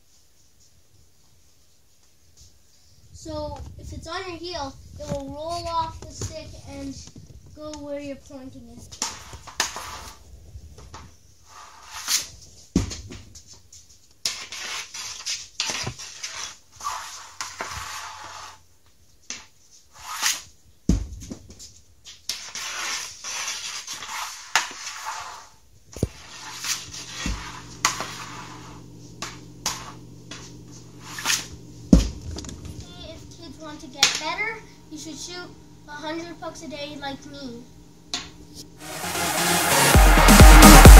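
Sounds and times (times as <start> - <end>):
hockey stick scraping shooting pad: 8.9 - 10.2, 11.4 - 13.2, 14.2 - 18.6, 19.2 - 20.6, 21.7 - 32.2
puck landing: 11.9 - 13.5.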